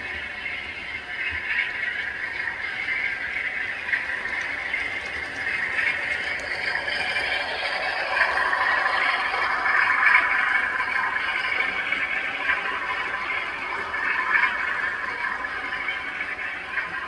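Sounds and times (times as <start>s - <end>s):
model train wheels clattering: 1.4s - 17.0s.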